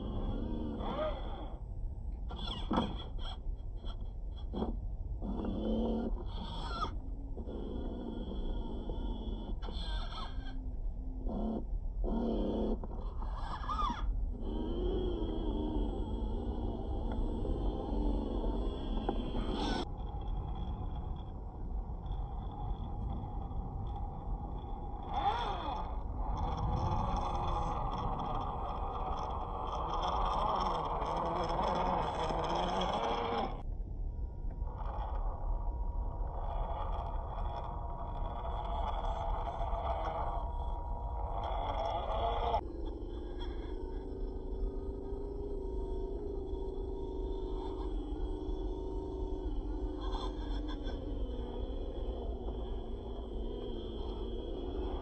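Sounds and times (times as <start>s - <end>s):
electric motor whining: 11.4s - 21.2s, 23.8s - 33.7s, 36.2s - 55.0s.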